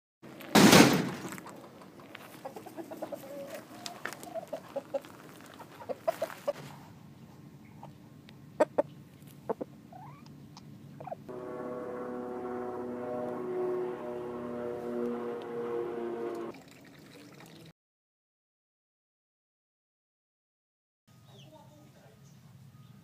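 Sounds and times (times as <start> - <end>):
chickens clucking: 1.5 - 6.6, 8.6 - 10.2.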